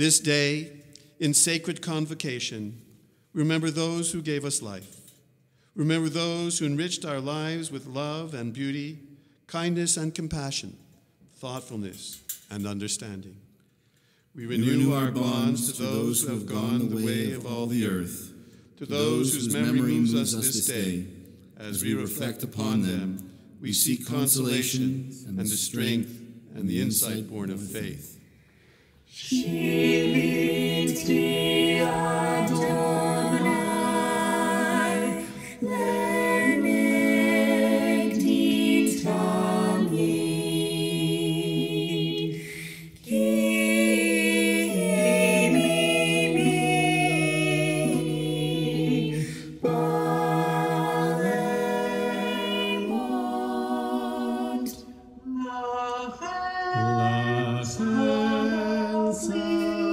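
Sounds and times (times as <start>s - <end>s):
group singing a cappella: 14.4s - 18.2s, 18.8s - 23.0s, 29.1s - 59.9s.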